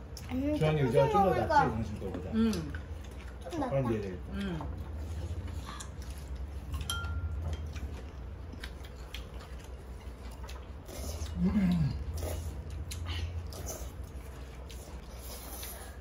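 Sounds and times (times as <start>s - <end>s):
chewing crispy food: 0.0s - 16.0s
low steady hum: 0.0s - 16.0s
chopsticks clicking on bowls: 6.7s - 7.9s
person humming mm: 11.3s - 12.1s.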